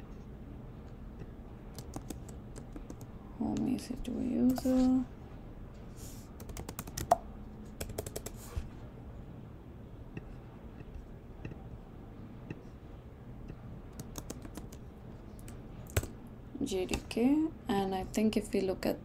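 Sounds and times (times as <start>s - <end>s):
computer keyboard typing: 1.7s - 3.1s, 6.4s - 7.2s, 7.8s - 8.4s, 13.9s - 14.8s.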